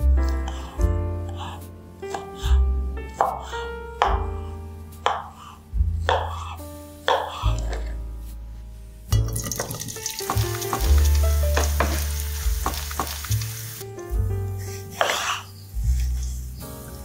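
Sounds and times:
knife chopping on wooden board: 3.2s - 4.3s, 5.0s - 5.3s, 6.1s - 6.5s, 7.1s - 7.8s
sausage sizzling in oil: 9.2s - 14.1s.

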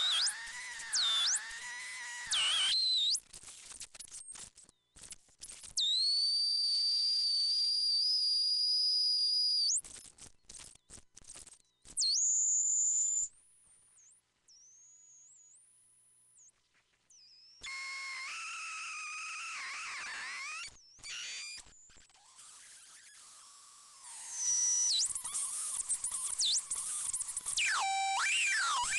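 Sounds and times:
piercing high electronic tone: 0.0s - 2.8s, 24.2s - 28.9s
shrill electronic whistling tones: 0.0s - 3.2s, 17.2s - 28.9s.

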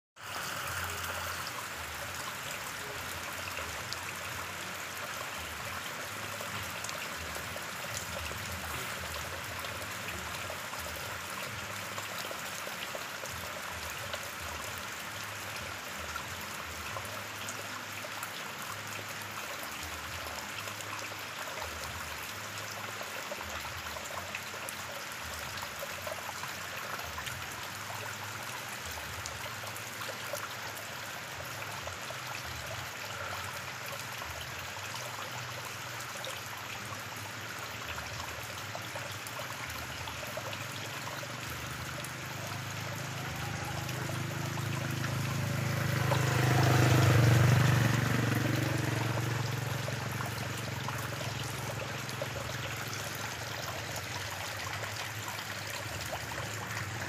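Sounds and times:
rain falling onto water: 0.2s - 57.0s.

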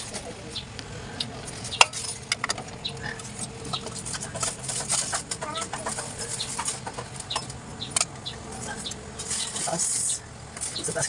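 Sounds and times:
oil filter clicks and scrapes: 1.4s - 8.1s.

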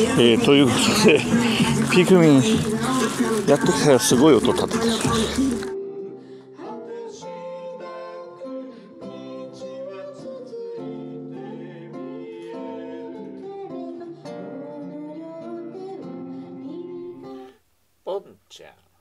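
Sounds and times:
man singing: 0.0s - 5.8s
acoustic guitar: 0.0s - 18.4s.

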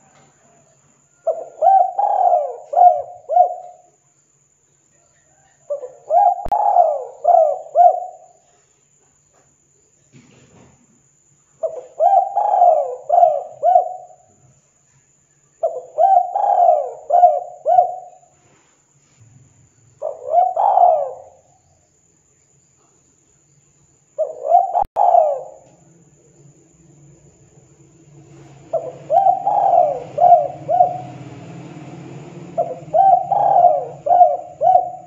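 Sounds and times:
dove cooing: 1.2s - 3.9s, 5.3s - 8.4s, 11.6s - 14.3s, 15.6s - 18.3s, 20.0s - 21.5s, 24.2s - 25.8s, 28.3s - 35.0s.

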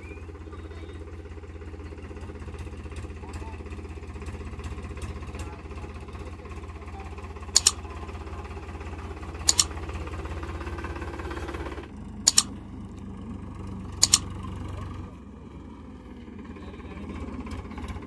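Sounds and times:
tractor diesel engine running: 0.0s - 18.0s
mouse clicks: 7.6s - 7.8s, 9.5s - 9.7s, 12.3s - 12.5s, 14.0s - 14.2s.

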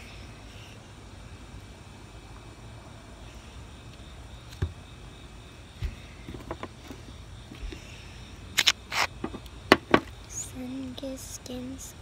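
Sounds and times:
faint low hum: 0.0s - 12.0s
sharp clicks: 8.6s - 9.5s.

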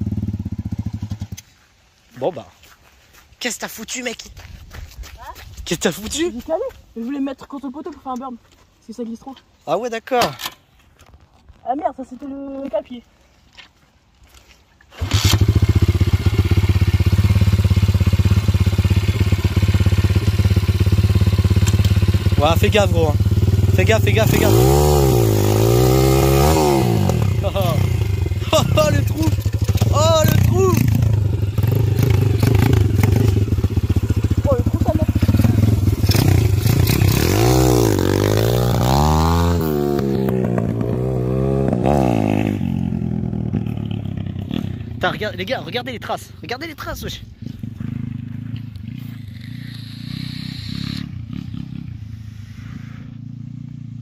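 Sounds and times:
dirt bike engine idling: 0.0s - 1.8s, 15.0s - 54.0s.

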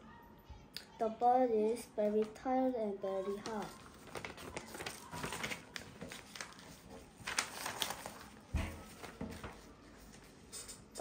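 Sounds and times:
paper pages rustling: 3.2s - 11.0s.

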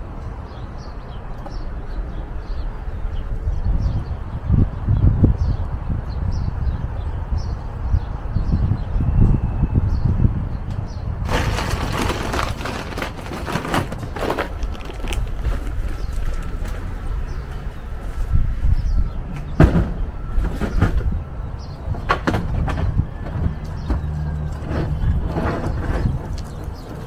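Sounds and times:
wind buffeting microphone: 0.0s - 27.0s
knocks and rustles: 11.3s - 16.9s, 21.9s - 27.0s.

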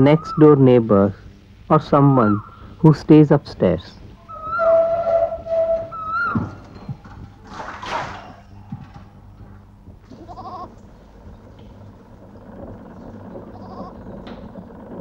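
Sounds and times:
quavering animal call: 0.0s - 0.7s, 1.7s - 2.8s, 4.2s - 9.3s, 10.1s - 15.0s
steady low hum: 0.0s - 15.0s.

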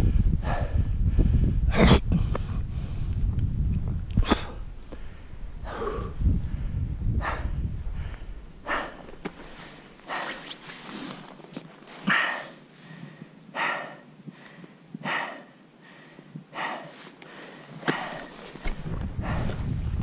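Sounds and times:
person breathing heavily: 0.0s - 3.2s, 4.2s - 20.0s
wind buffeting microphone: 0.0s - 10.2s, 17.8s - 20.0s.

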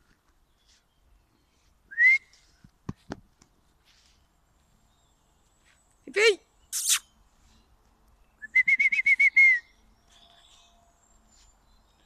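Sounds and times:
person whistling: 1.9s - 2.4s, 8.4s - 9.7s.

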